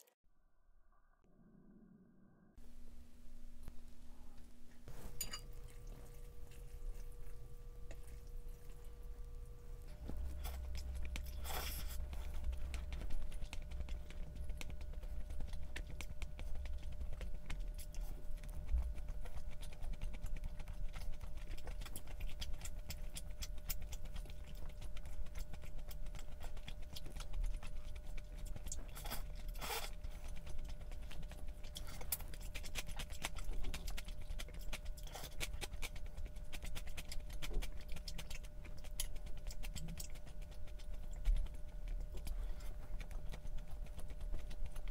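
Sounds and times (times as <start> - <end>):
low hum: 0.0 - 23.8
person chewing: 4.2 - 44.9.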